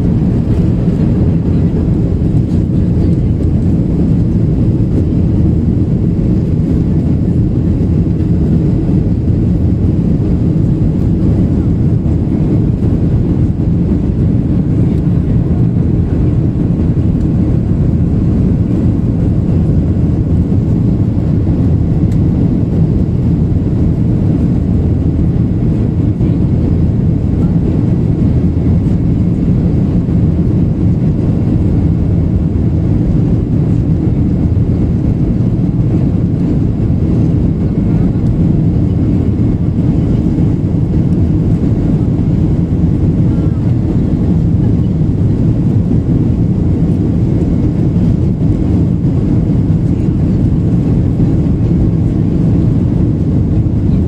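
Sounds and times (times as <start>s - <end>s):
airplane cabin engine rumble: 0.0s - 54.0s
rushing airflow: 0.0s - 54.0s.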